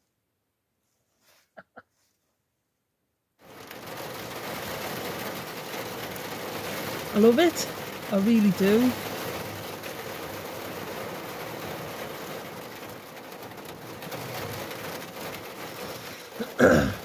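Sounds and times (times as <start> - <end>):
rain pattering on van roof: 3.4 - 17.0.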